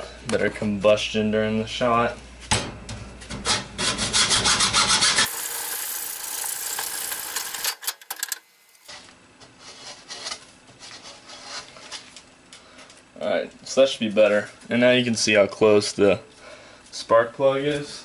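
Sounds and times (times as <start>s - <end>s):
hacksaw sawing plastic pipe: 3.8s - 5.4s.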